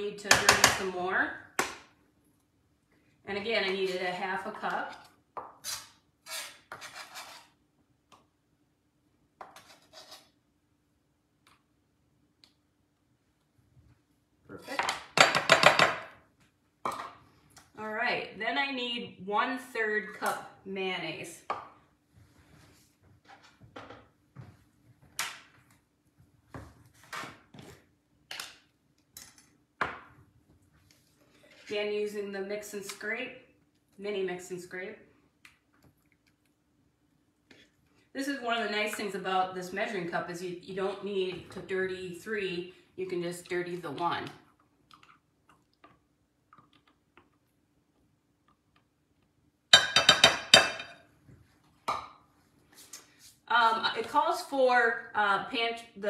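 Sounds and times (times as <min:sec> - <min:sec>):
kitchen knocks and clunks: 0:14.8 - 0:16.2, 0:49.7 - 0:51.0.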